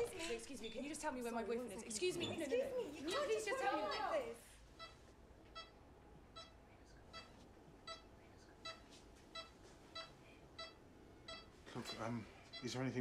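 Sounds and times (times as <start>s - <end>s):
patient monitor beeping: 4.8s - 13.0s.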